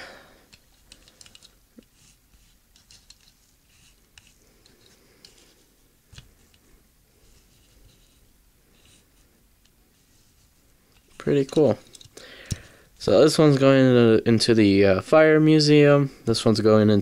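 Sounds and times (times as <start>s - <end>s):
toy car handling clicks and rubs: 0.5s - 12.6s.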